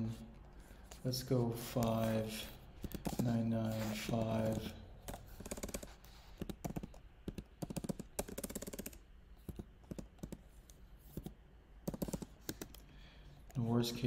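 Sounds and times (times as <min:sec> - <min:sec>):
keyboard typing clicks: 0:04.2 - 0:10.4.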